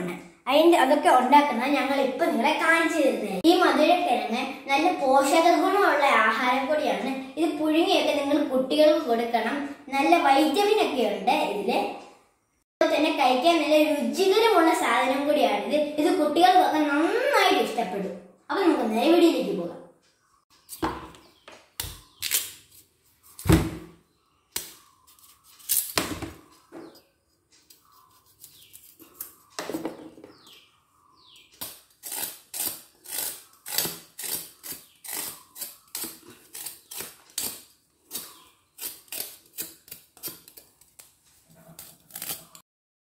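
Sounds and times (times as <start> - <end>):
knife scraping sweet potato skin: 21.8 - 23.5, 24.5 - 26.0, 27.6 - 29.6, 31.6 - 42.6.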